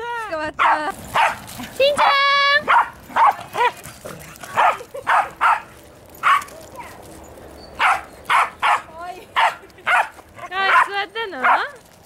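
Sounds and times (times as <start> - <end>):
dog barking high-pitched: 0.6 - 1.4, 2.0 - 3.8, 4.6 - 6.5, 7.8 - 10.1, 10.7 - 11.7.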